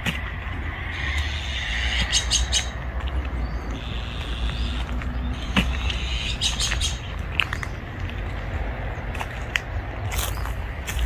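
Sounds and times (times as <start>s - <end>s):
small birds chirping: 0.0s - 11.0s
steady low rumble: 0.0s - 11.0s.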